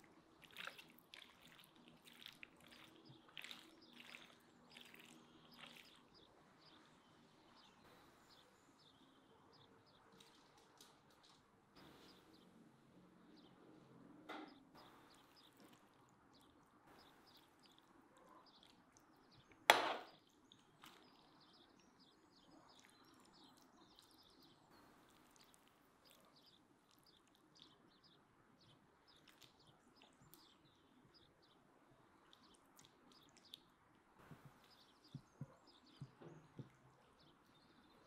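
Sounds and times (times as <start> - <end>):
faint bird chirps: 0.0 - 38.0
sharp knock: 19.7 - 20.1.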